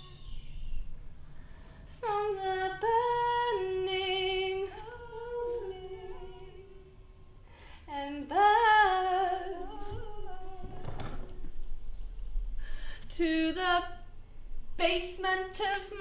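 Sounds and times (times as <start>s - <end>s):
woman singing unaccompanied: 2.0s - 7.0s, 7.9s - 11.4s, 13.1s - 14.1s, 14.8s - 16.0s.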